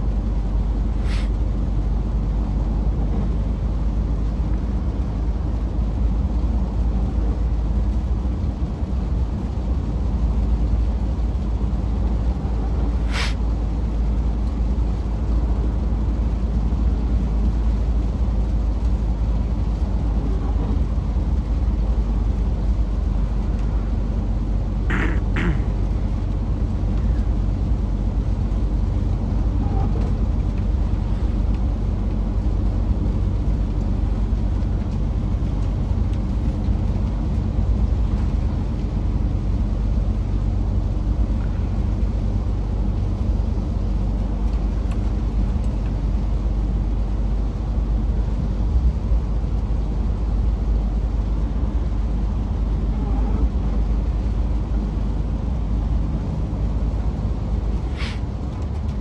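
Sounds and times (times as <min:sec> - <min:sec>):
short air hiss: 0:01.0 - 0:01.4, 0:13.0 - 0:13.4, 0:57.8 - 0:58.3
truck diesel engine droning: 0:09.8 - 0:59.0.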